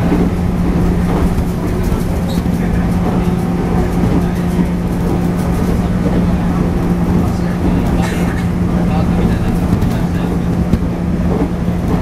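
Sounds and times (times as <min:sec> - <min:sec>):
rail noise: 0:00.0 - 0:12.0
traction motor hum: 0:00.0 - 0:12.0.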